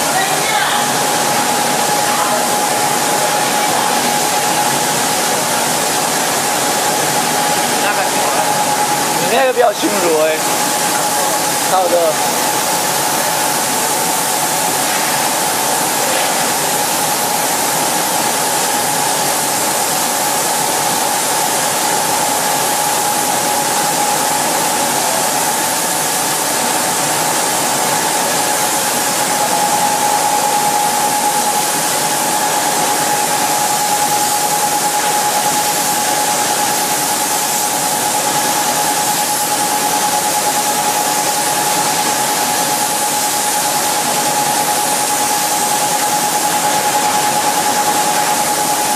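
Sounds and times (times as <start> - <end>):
steady tone: 21.1 - 43.6.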